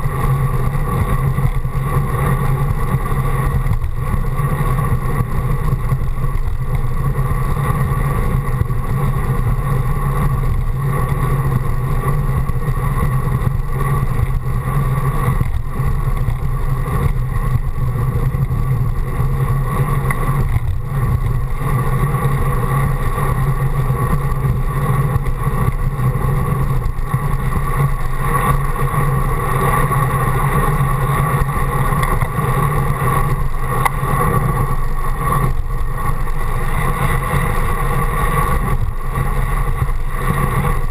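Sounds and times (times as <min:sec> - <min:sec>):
wind rush on microphone: 0:00.0 - 0:40.9.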